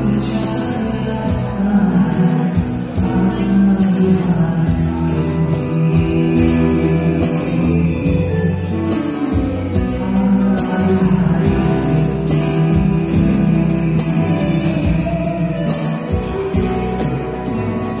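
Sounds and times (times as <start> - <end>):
live band music: 0.0 - 18.0.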